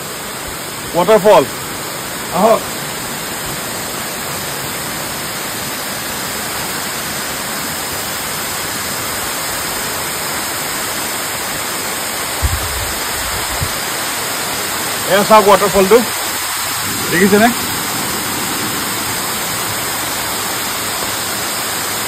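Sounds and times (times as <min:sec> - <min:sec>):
waterfall rushing: 0:00.0 - 0:22.0
low thumps: 0:12.4 - 0:13.9.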